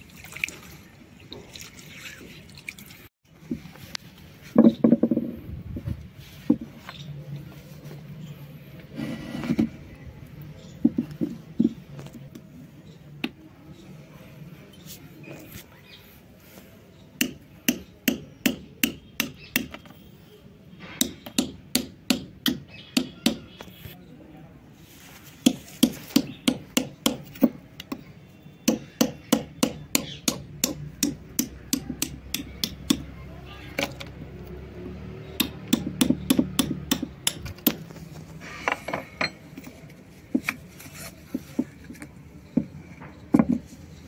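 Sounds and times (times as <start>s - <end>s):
sharp knocks on concrete: 4.5s - 5.4s, 10.8s - 12.1s, 17.2s - 20.0s, 20.8s - 23.7s, 25.4s - 33.1s, 35.3s - 37.9s, 38.5s - 39.7s, 43.3s - 43.7s
stone slab scraping: 8.8s - 9.9s.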